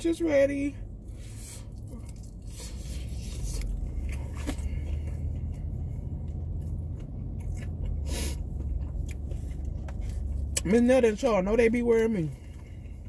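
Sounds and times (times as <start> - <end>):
low car cabin hum: 0.0 - 13.0
crunchy chewing: 1.6 - 10.6.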